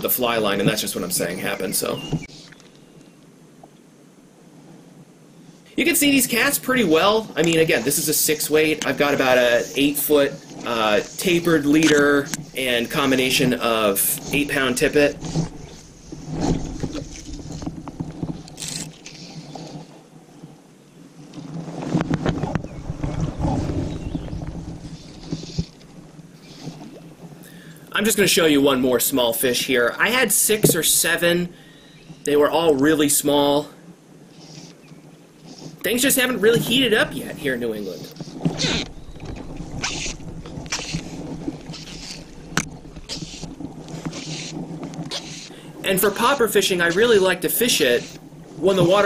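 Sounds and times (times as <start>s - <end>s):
fly line swishing: 6.4s - 20.0s, 37.8s - 49.0s
low rumbling on microphone: 21.8s - 27.7s, 36.4s - 47.3s.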